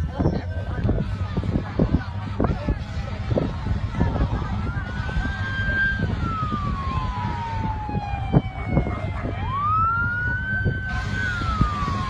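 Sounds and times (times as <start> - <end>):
steady low rumble: 0.0 - 12.0
siren wailing: 4.6 - 12.0.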